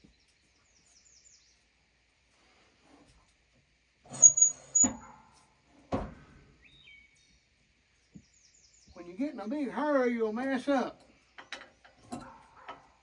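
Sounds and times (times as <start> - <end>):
small birds chirping: 0.0 - 2.0, 6.5 - 10.1, 11.0 - 13.0
log scraping with high squeak: 4.1 - 5.1.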